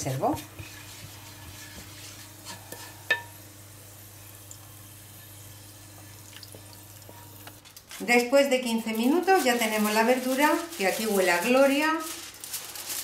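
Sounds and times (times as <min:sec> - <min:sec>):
wooden spatula scraping frying pan: 0:00.0 - 0:03.4
oil sizzling: 0:00.0 - 0:13.0.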